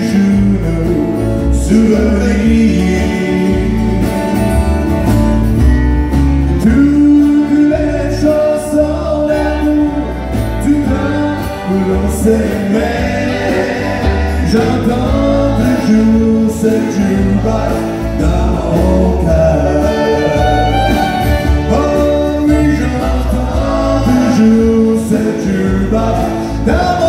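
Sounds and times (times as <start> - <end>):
man singing: 0.0 - 4.9, 6.5 - 27.0
strummed acoustic guitars: 0.0 - 27.0
fiddle: 19.6 - 22.6.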